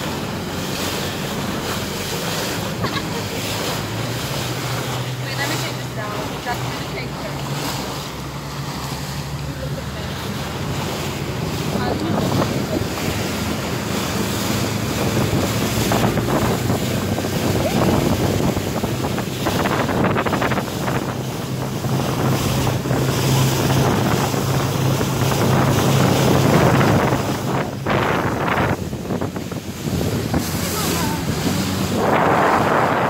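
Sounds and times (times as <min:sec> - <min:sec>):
speedboat engine humming: 0:00.0 - 0:33.0
water rushing and splashing: 0:00.0 - 0:33.0
wind noise on microphone: 0:11.1 - 0:33.0.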